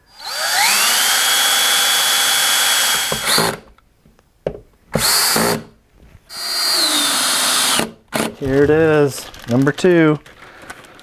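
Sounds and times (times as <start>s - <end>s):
power drill whining: 0.0s - 3.7s, 5.0s - 5.7s, 6.3s - 8.4s.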